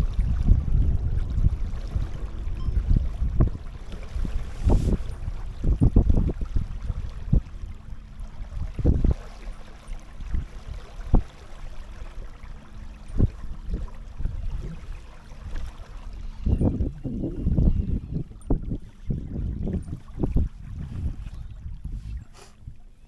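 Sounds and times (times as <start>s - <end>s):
river water around kayak: 0.0s - 23.0s
wind buffeting microphone: 0.0s - 23.0s.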